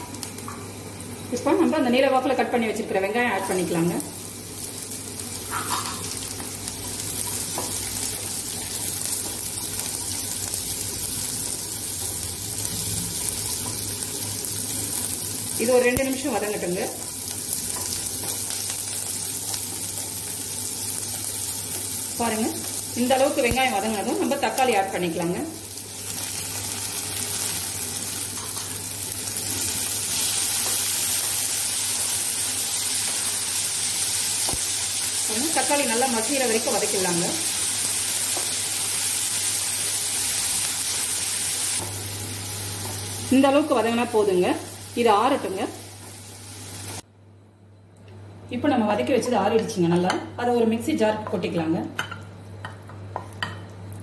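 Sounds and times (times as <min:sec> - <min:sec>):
onions sizzling in oil: 0:00.0 - 0:47.0.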